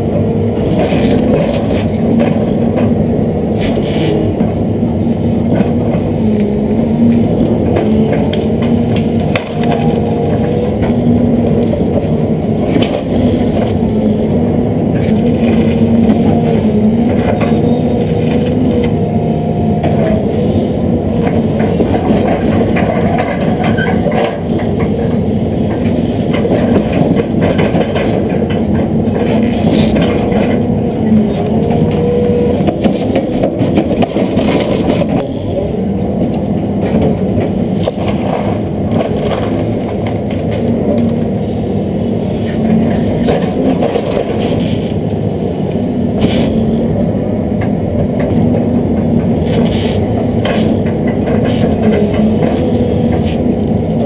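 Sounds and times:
excavator engine and hydraulics: 0.0 - 54.0.

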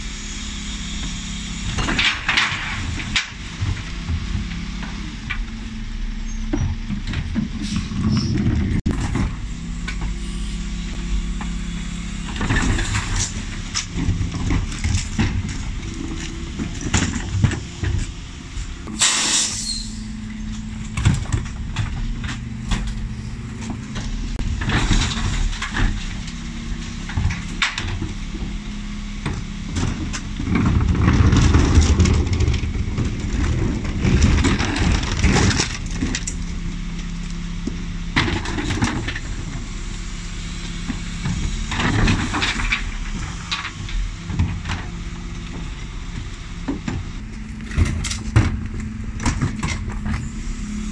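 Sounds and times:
bin lift low rumble: 0.0 - 50.9
refuse truck engine humming: 0.0 - 50.9
wheelie bins knocking and clattering: 12.3 - 19.1, 29.2 - 36.3, 41.3 - 50.3
short hiss of air: 19.0 - 20.0.

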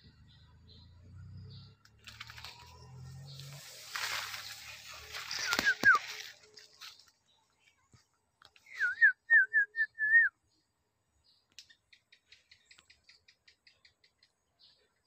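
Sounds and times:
person whistling: 8.7 - 10.3.

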